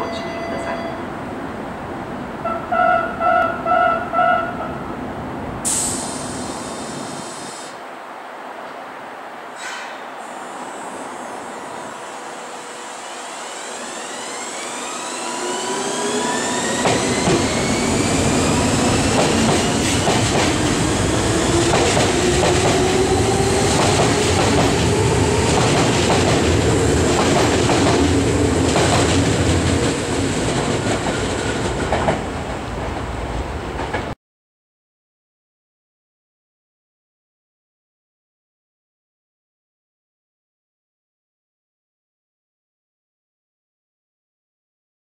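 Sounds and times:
electric train motor whine rising: 12.4 - 19.9
train running rumble: 13.8 - 34.2
wheels clacking over rail joints: 21.5 - 33.1.

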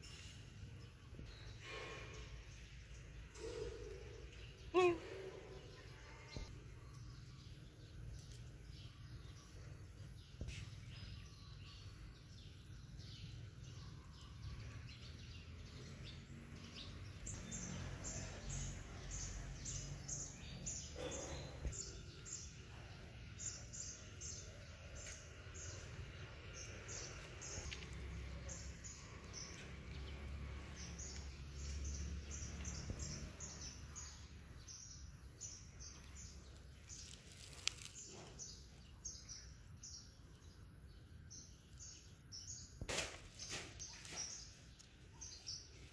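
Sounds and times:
small birds chirping: 0.0 - 45.9.

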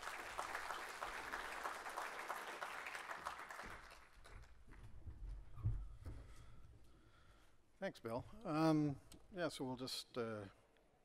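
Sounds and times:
audience applauding: 0.0 - 4.6.

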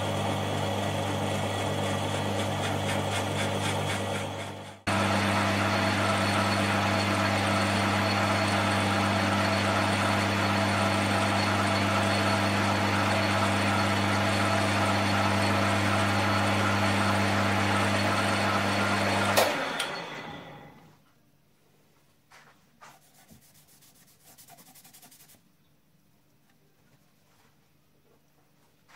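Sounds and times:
lathe running down: 0.0 - 20.8
metal lathe motor hum: 0.0 - 20.8.

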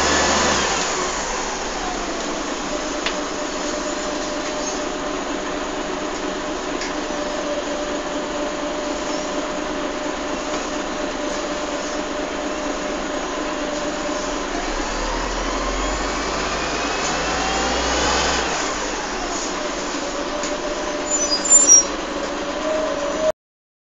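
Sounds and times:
rising engine whine: 0.0 - 4.9, 13.5 - 23.3
bus engine running: 0.0 - 23.3.

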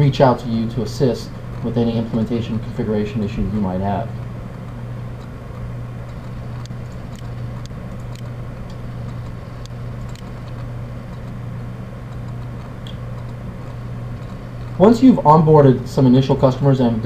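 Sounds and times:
low electrical hum: 0.0 - 17.0
computer mouse clicks: 6.0 - 11.4, 12.1 - 14.8.

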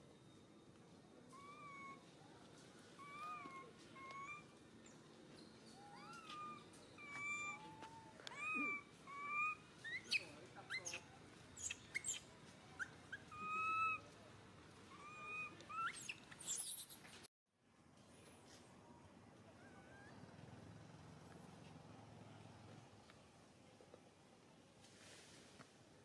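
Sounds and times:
infant monkey whimpering: 1.4 - 2.0, 3.0 - 4.5, 5.8 - 10.2, 12.8 - 14.0, 14.9 - 16.1.

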